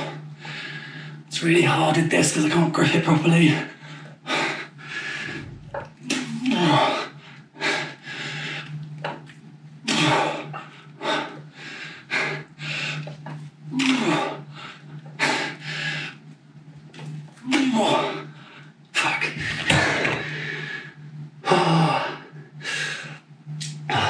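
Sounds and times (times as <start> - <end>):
man breathing hard: 0.0 - 1.3, 3.7 - 8.8, 9.9 - 13.2, 13.8 - 16.2, 18.0 - 23.3
steady low hum: 0.0 - 24.0
man grunting: 6.1 - 7.0.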